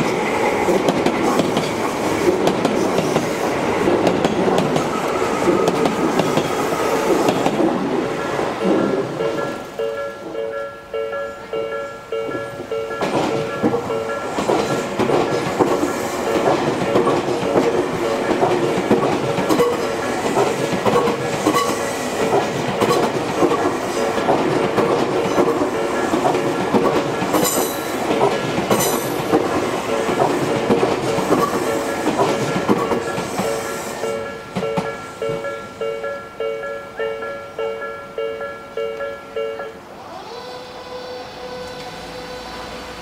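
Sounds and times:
train wheels clattering over rail joints: 0.0 - 9.8, 12.3 - 35.5
crossing warning bell ringing: 8.1 - 22.2, 24.0 - 39.9
high squeal: 40.0 - 43.0.

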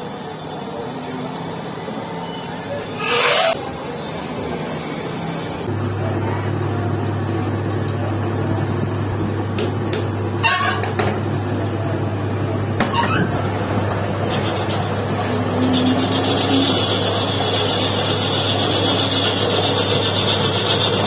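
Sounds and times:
lathe motor hum: 13.4 - 21.0.

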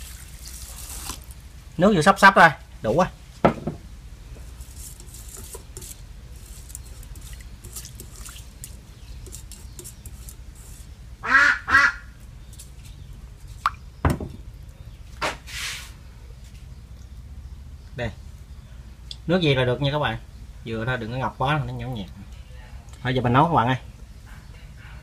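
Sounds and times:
light splashing in a pot: 0.0 - 1.4
short knock: 3.4 - 3.8
duck quacks: 11.2 - 12.1.

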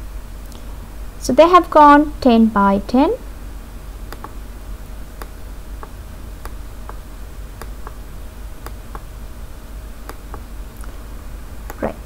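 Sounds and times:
faint steady hum: 0.0 - 12.0
computer mouse button clicking: 4.1 - 4.4.

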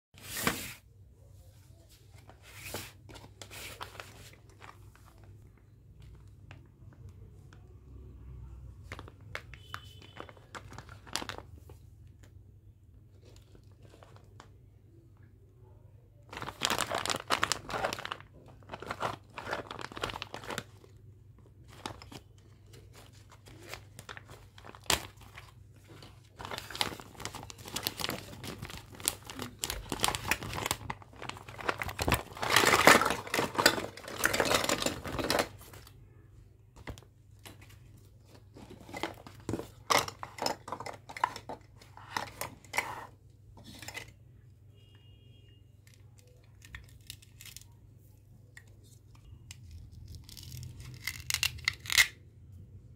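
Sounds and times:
plastic bag crinkling: 8.8 - 11.7, 16.3 - 35.9.

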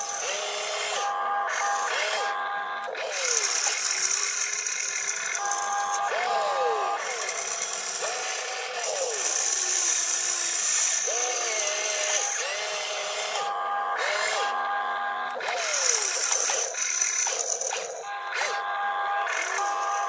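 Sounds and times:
toy electric motors whining: 0.0 - 20.0.

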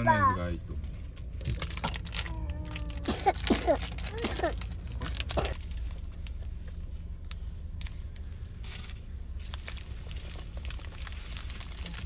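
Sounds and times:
low car cabin hum: 0.0 - 12.0
plastic wrapper crinkling: 1.3 - 7.4, 8.8 - 12.0.

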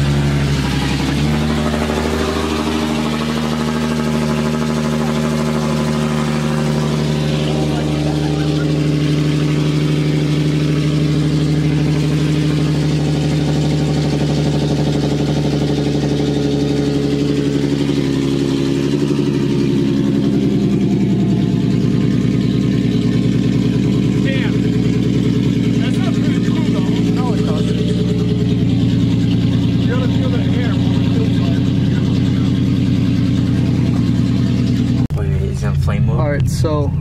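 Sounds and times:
loud car engine idling: 0.0 - 37.0.

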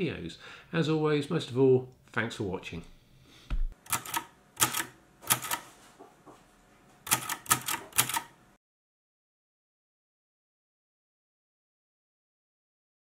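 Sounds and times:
typewriter keystrokes clacking: 3.9 - 5.6, 7.1 - 8.4.

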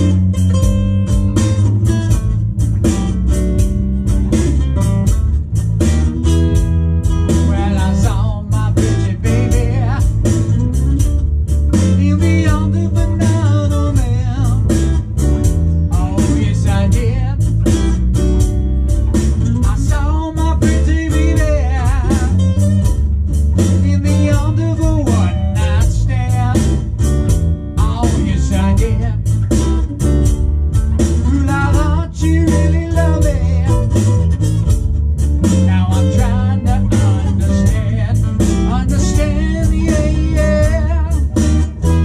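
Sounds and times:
blues song: 0.0 - 42.0
cigar box guitar: 0.0 - 42.0
electric bass line: 0.0 - 42.0
person singing: 7.3 - 10.5, 11.7 - 15.0, 15.9 - 17.7, 19.4 - 22.7, 23.7 - 27.1, 27.8 - 29.4, 31.2 - 34.3, 35.4 - 42.0.

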